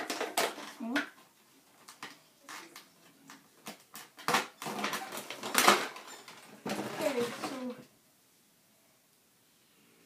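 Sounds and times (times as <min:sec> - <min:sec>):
plastic clicks and rattles: 0:00.0 - 0:01.2, 0:01.8 - 0:07.7
packaging rustling: 0:03.6 - 0:07.8.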